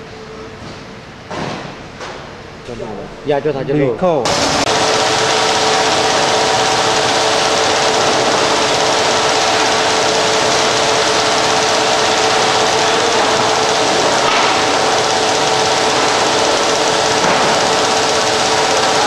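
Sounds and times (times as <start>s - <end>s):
packing machine clattering: 4.3s - 19.0s.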